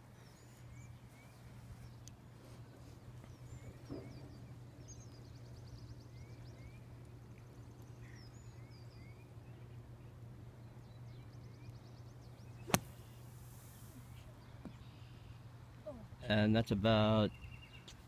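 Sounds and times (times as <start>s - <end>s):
small birds chirping: 0.0s - 15.6s, 17.2s - 18.0s
golf club striking sand: 12.7s - 14.0s.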